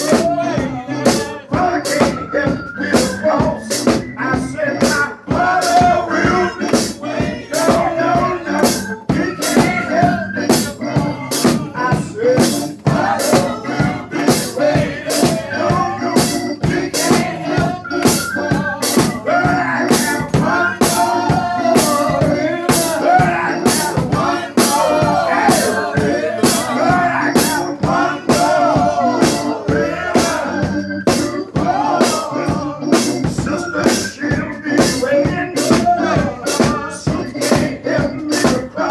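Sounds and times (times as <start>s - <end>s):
man singing into a microphone: 0.0s - 6.6s, 30.1s - 38.9s
steady percussive beat: 0.0s - 38.9s.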